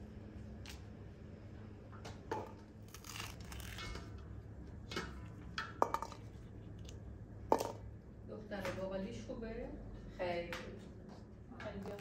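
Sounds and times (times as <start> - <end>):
bean pods snapping and tearing: 2.8 - 4.0.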